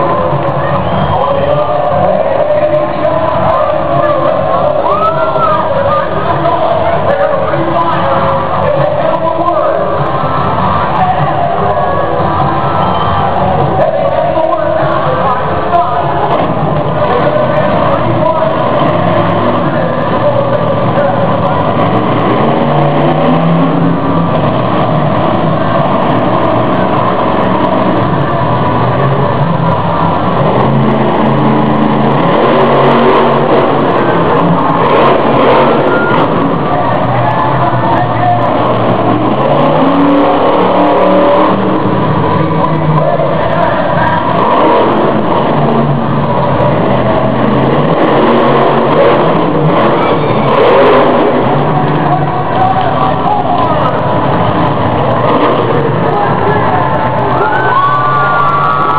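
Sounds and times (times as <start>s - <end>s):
loud truck engine revving: 0.0s - 58.9s.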